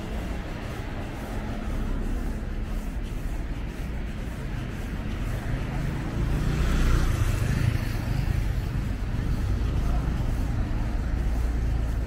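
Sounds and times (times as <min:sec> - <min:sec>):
low traffic rumble: 0:00.0 - 0:12.0
car passing by: 0:04.7 - 0:12.0.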